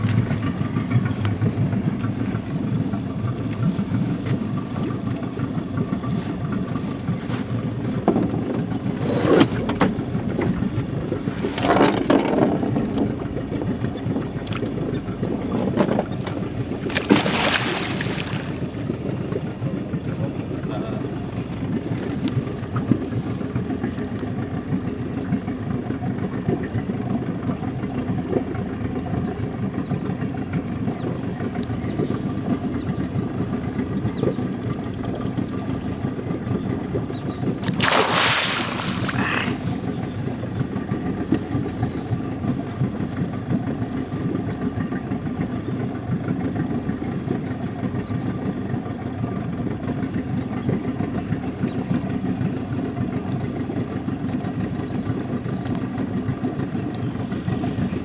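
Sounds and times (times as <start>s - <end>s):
engine idling: 0.0s - 58.0s
fish splashing in water: 16.6s - 19.4s, 37.5s - 41.0s.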